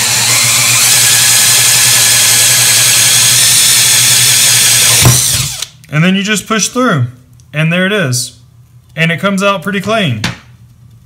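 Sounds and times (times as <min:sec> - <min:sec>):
cordless drill boring into wood: 0:00.0 - 0:05.7.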